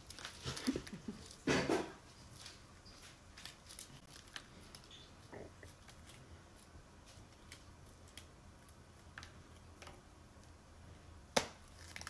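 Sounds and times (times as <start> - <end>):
cookies cracking: 0.0 - 12.0
cookie snapping: 11.3 - 12.0.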